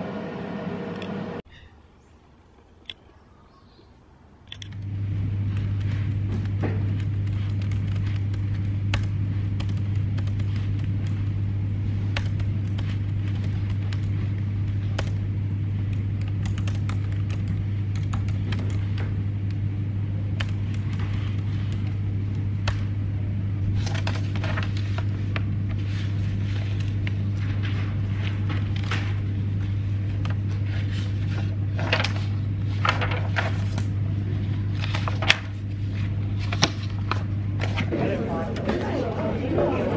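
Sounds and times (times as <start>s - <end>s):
low electrical hum: 0.0s - 39.9s
laptop keyboard typing: 4.5s - 23.0s, 23.8s - 27.3s
paper pages rustling: 5.4s - 15.2s, 20.5s - 22.0s, 23.6s - 37.9s.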